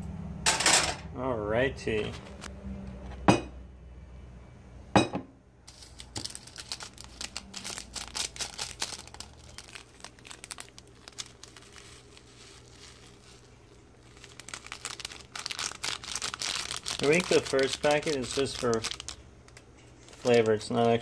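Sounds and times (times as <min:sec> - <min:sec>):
plastic sachet crinkling and tearing: 0:05.7 - 0:21.0.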